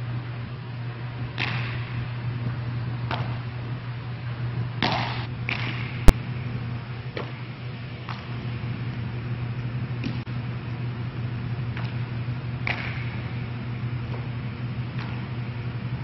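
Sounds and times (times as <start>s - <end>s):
low hum: 0.0s - 16.0s
baseball bat crack: 1.4s - 2.0s, 4.8s - 6.2s, 12.6s - 13.3s.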